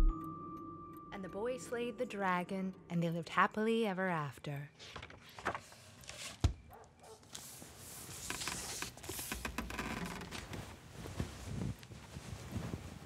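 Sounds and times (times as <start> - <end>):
duvet rustling: 7.3 - 13.0.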